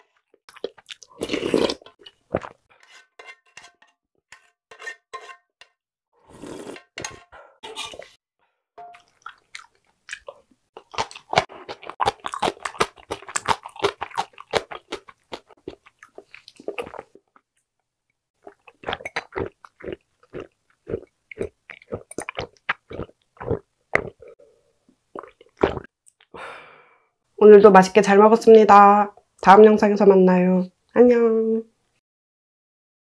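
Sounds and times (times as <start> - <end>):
crunchy chewing: 9.1 - 17.4.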